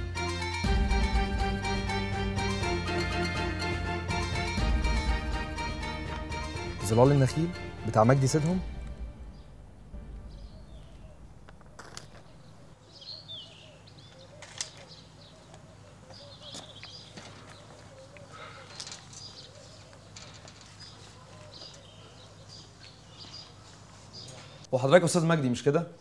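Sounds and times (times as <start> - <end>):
small birds chirping: 9.3 - 24.7.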